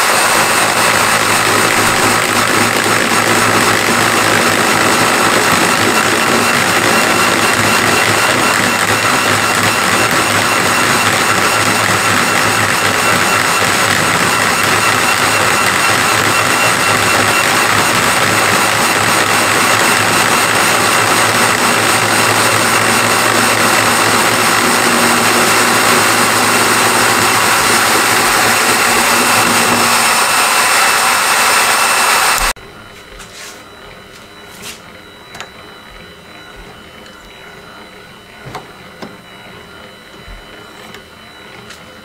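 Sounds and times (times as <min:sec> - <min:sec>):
milling machine running: 0:00.0 - 0:32.6.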